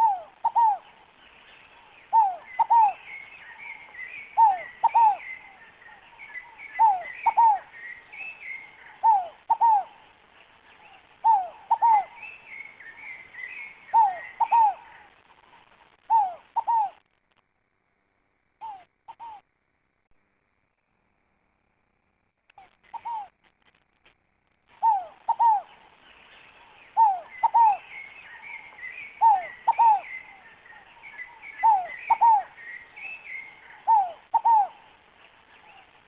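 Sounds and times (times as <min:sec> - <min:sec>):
dove cooing: 0:00.0 - 0:01.1, 0:01.8 - 0:10.1, 0:10.8 - 0:17.0, 0:18.6 - 0:19.4, 0:22.6 - 0:23.4, 0:24.7 - 0:25.9, 0:26.6 - 0:36.0
small birds twittering: 0:00.0 - 0:17.1, 0:18.6 - 0:19.5, 0:22.5 - 0:23.4, 0:24.7 - 0:36.0.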